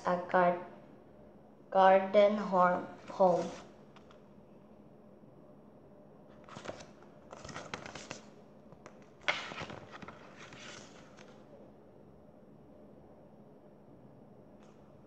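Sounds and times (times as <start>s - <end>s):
paper pages rustling: 6.3s - 11.4s.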